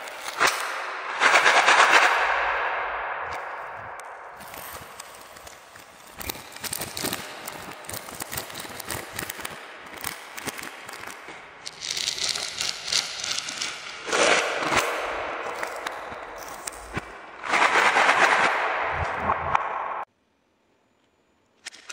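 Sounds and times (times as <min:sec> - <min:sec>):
plastic packaging crinkling: 0:04.4 - 0:13.8.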